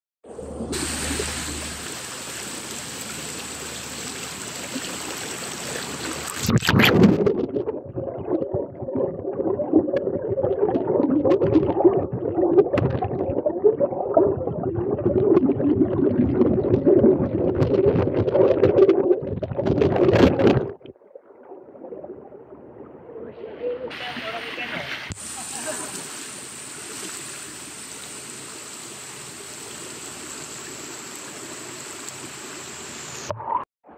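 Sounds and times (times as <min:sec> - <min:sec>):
underwater gurgling rumble: 0:00.3 - 0:23.9
river running over rocks: 0:00.7 - 0:06.4.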